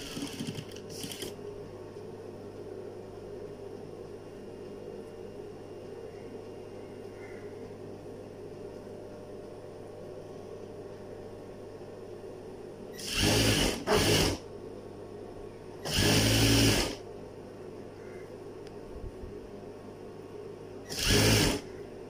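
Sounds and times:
sewing machine stitching: 0.0s - 1.4s, 13.0s - 14.4s, 15.9s - 17.0s, 20.9s - 21.6s
steady low hum: 0.0s - 22.0s.

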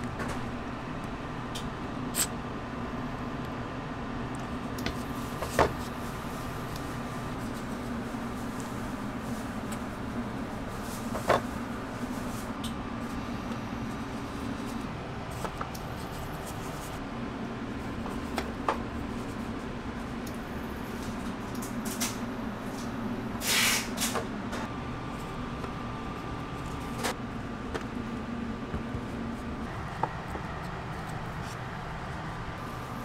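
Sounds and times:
kitchen equipment humming: 0.0s - 33.0s
short hissing burst: 23.4s - 23.9s.

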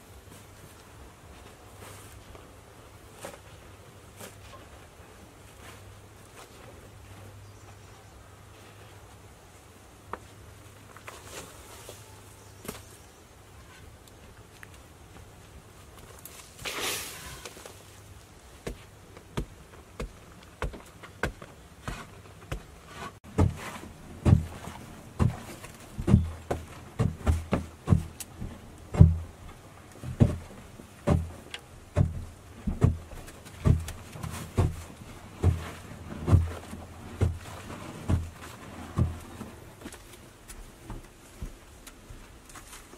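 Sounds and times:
hands scraping soil into basket: 16.1s - 18.8s, 21.8s - 29.1s, 32.0s - 40.0s.

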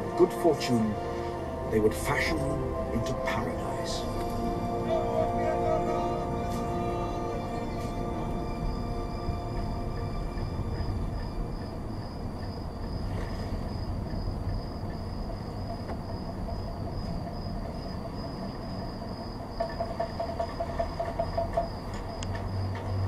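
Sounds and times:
high trilling tone: 0.0s - 11.5s
rhythmic clicks: 0.0s - 17.0s
steady low rumble: 0.0s - 19.3s.

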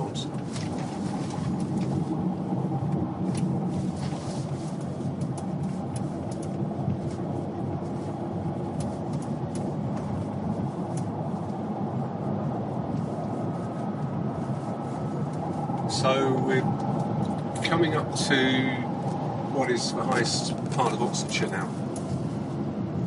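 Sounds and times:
car engine and tyre noise: 0.0s - 23.0s
faint ticks and rattles: 4.7s - 11.5s.

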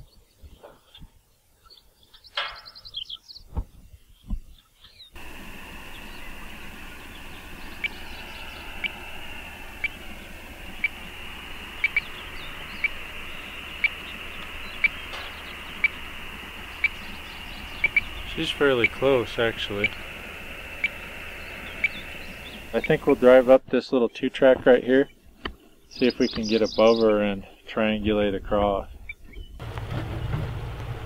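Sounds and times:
radio receiver static hiss: 5.2s - 23.6s.

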